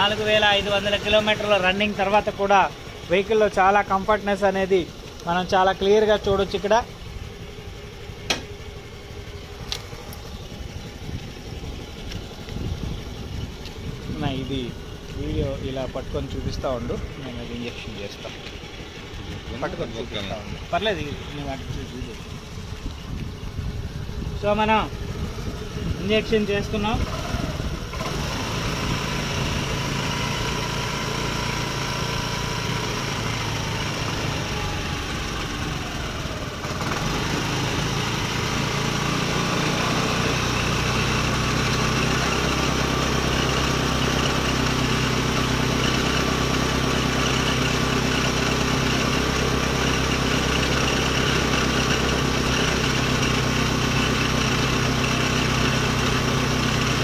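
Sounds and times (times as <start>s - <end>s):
scooter engine idling: 0.0s - 57.0s.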